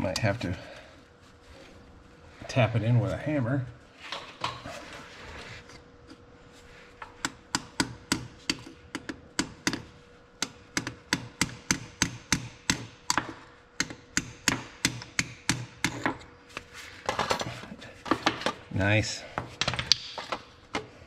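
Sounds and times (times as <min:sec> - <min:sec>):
hammer tapping metal tool: 0:07.0 - 0:16.3.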